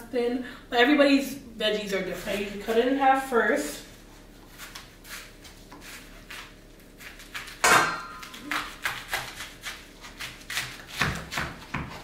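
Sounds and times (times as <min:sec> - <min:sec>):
knife cutting cabbage: 0:04.4 - 0:12.0.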